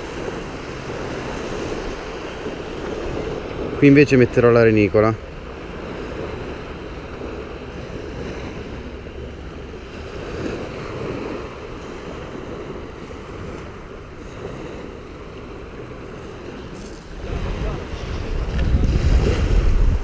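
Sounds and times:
small waves washing on shore: 0.0s - 20.0s
wind on microphone: 5.4s - 20.0s.

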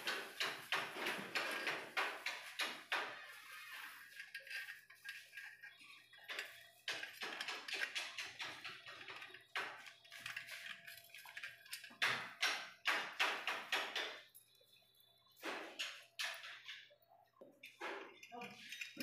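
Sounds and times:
metal fittings clinking: 17.6s - 19.0s.

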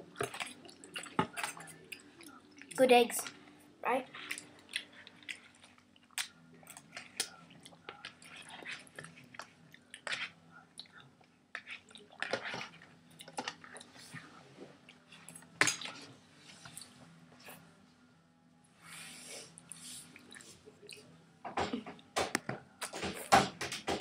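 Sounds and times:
people chewing noodles: 0.0s - 3.4s, 4.1s - 17.6s, 19.6s - 21.1s.

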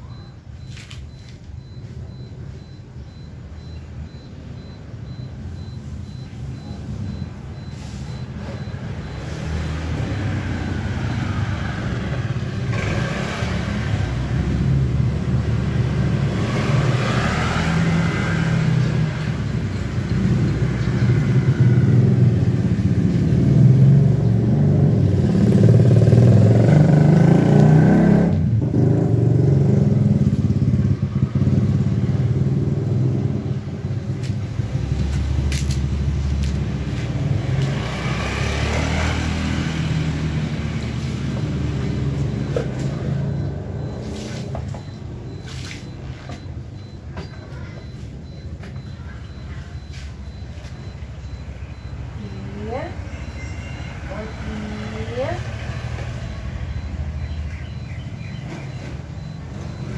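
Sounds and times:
vehicle engine rumbling: 0.0s - 59.9s.

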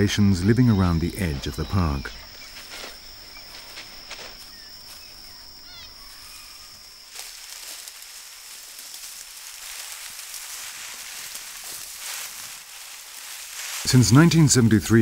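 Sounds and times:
bird chirps: 0.0s - 7.2s
high insect drone: 0.0s - 15.0s
soft steady hiss: 0.0s - 15.0s.

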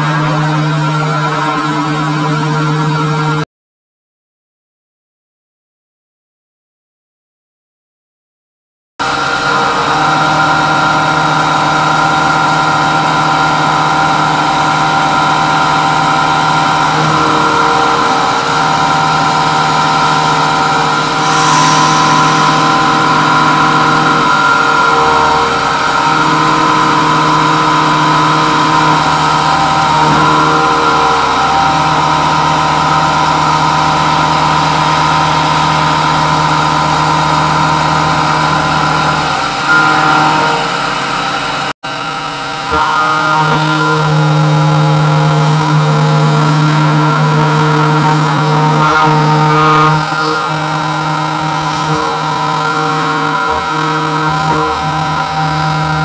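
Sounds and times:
milling machine cutting metal whine: 0.0s - 3.4s, 9.0s - 56.0s
brief hiss: 21.0s - 25.8s.

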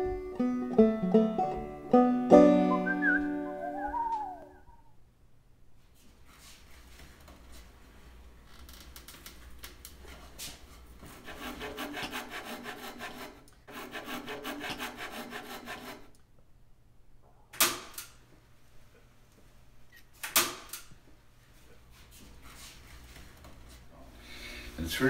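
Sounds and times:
scraping on wood: 10.0s - 16.1s.

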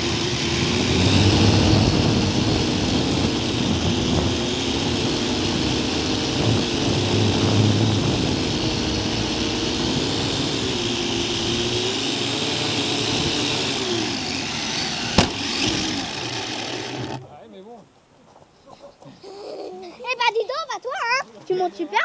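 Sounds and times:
drone propellers whirring: 0.0s - 17.3s
drone knocking on grass: 15.0s - 16.2s.

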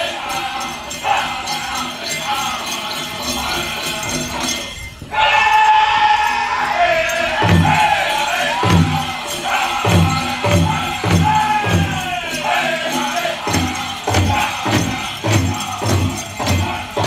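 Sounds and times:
men singing in unison: 0.0s - 17.0s
big drum beating: 7.4s - 12.3s, 13.4s - 17.0s.

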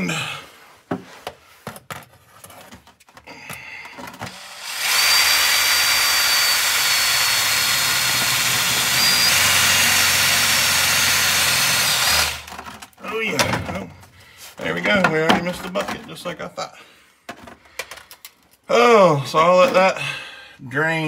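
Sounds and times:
cordless drill whining: 3.9s - 12.6s.

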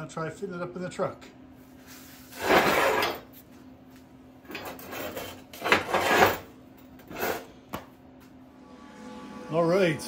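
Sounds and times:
objects scraping and rubbing: 1.8s - 3.4s, 4.5s - 7.6s.

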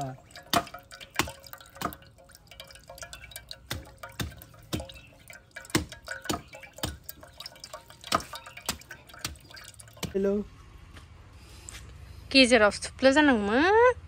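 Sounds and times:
water drops plopping into pot: 0.0s - 10.2s.

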